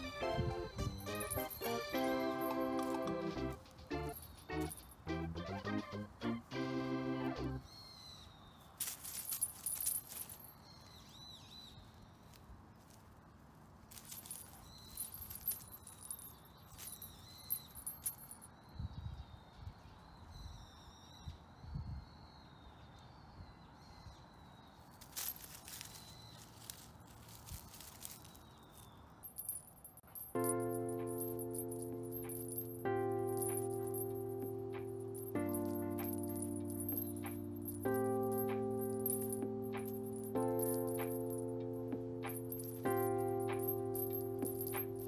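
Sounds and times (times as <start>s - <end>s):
faint outdoor background: 0.0s - 45.0s
dry leaves and grass rustling: 7.6s - 18.3s, 24.8s - 45.0s.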